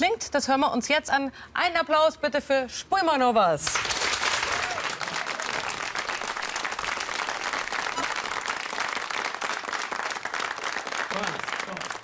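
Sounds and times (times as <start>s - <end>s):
audience applauding: 3.7s - 12.0s.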